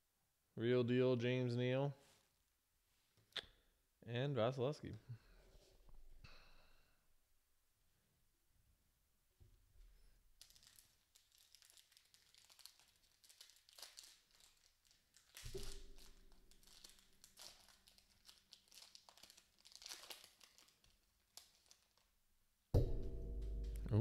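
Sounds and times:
foil wrapper tearing and crinkling: 10.4s - 22.1s.

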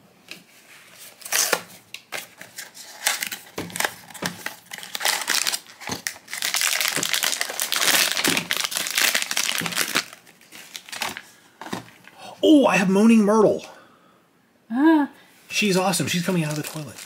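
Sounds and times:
plastic bag crinkling: 2.2s - 12.1s, 16.1s - 17.0s.

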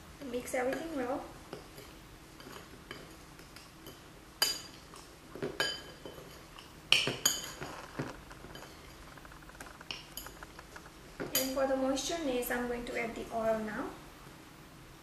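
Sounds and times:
spoon clinking and scraping bowl: 0.6s - 10.6s.

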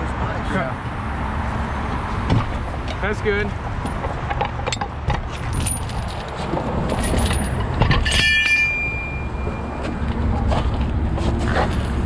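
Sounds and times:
metal clink ringing: 6.9s - 9.8s.

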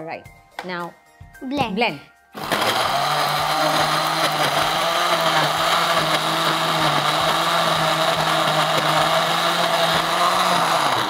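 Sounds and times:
blender motor hum and whine: 2.4s - 11.0s.

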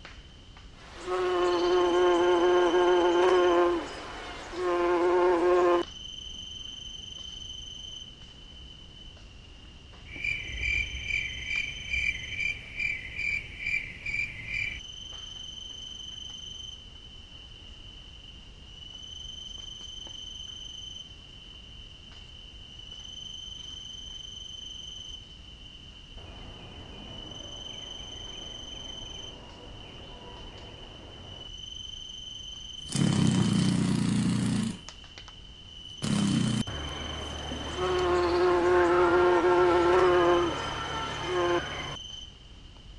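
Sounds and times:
cricket trilling: 0.8s - 8.0s, 10.1s - 14.8s, 26.2s - 42.3s
bee buzzing: 0.9s - 5.8s, 36.0s - 42.0s.

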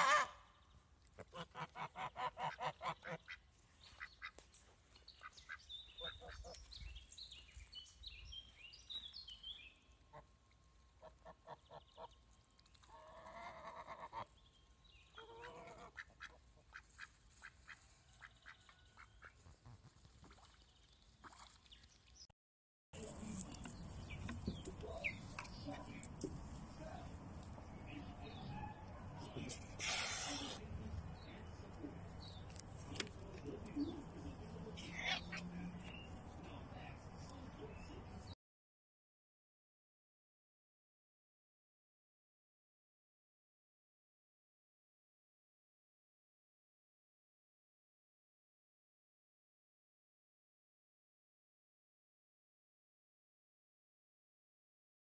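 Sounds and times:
ducks quacking: 1.2s - 4.4s, 5.2s - 6.6s, 12.9s - 14.3s, 15.2s - 19.5s.

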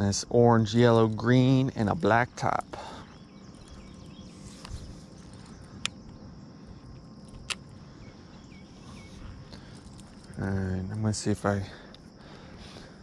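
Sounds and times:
insect buzzing: 0.0s - 13.0s.

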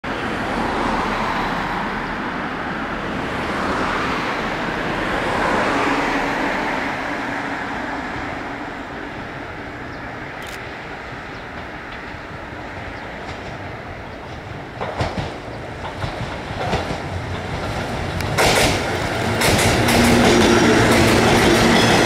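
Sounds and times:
cars passing: 0.0s - 22.0s.

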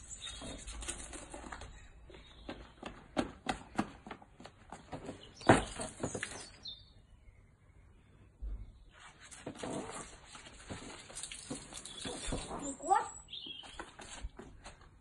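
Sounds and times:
footsteps on wet stone: 10.5s - 12.7s.

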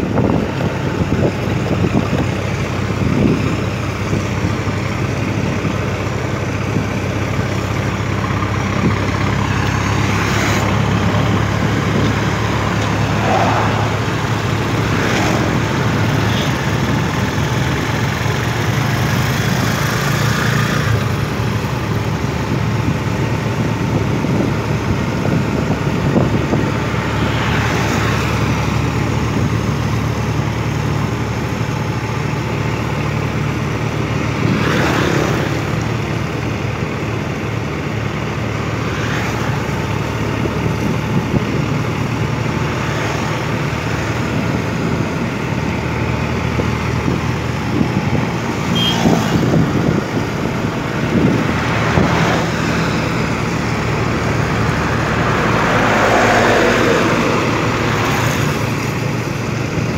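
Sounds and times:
truck engine drone: 0.0s - 59.9s
wind and tyre noise: 0.0s - 59.9s
vehicles swishing past: 6.7s - 21.3s, 26.1s - 29.2s, 33.7s - 59.9s.

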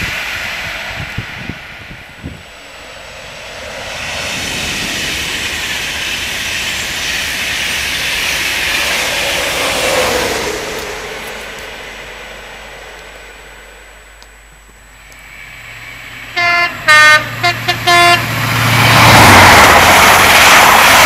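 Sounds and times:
train passing at speed: 0.0s - 21.0s.

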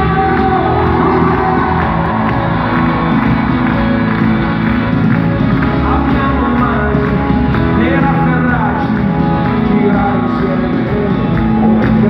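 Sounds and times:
live pop-rock band: 0.0s - 12.0s
lead vocal singing: 5.6s - 12.0s.

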